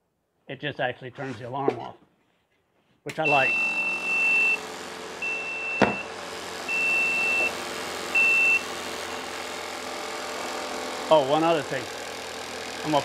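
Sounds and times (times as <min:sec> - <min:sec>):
alarm buzzer beeps: 0:03.2 - 0:08.7
coolant pump running: 0:03.2 - 0:13.0.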